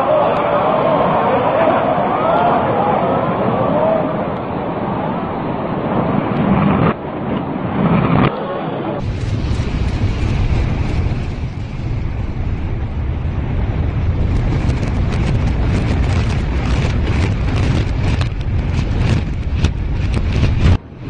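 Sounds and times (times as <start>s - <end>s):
low rumble of collapse: 2.2s - 21.0s
sharp cracks: 9.0s - 20.8s.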